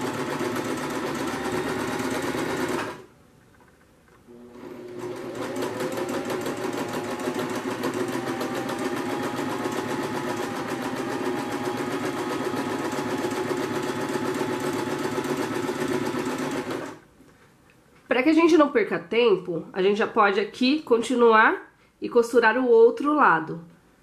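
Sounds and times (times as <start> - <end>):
sewing machine stitching: 0.0 - 3.1, 4.3 - 17.0.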